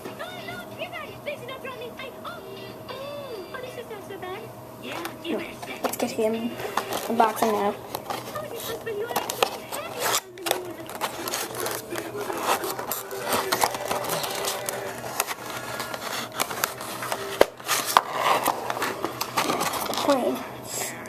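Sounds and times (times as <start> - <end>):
plastic tray scraping: 5.0 - 20.4
cardboard box rustling: 5.8 - 20.4.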